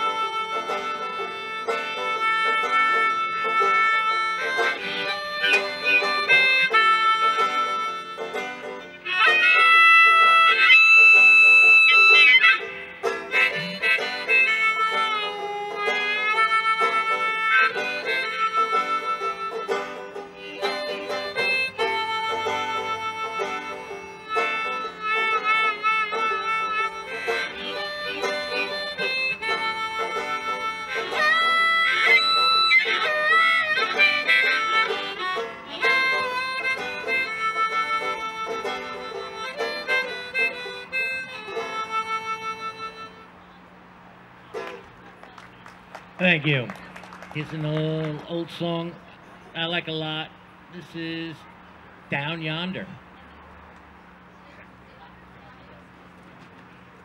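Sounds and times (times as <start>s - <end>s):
banjo picking: 0.0s - 57.0s
harmonica playing: 0.0s - 57.0s.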